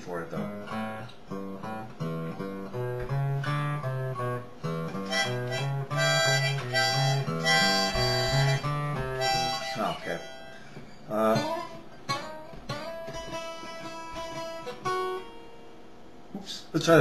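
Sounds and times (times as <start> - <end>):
acoustic guitar picking blues: 0.0 - 15.7
stepping bass line: 2.8 - 9.6.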